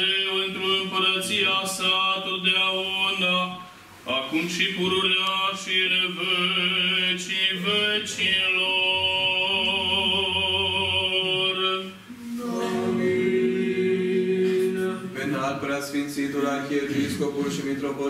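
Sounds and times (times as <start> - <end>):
choir chanting: 5.6 - 15.4.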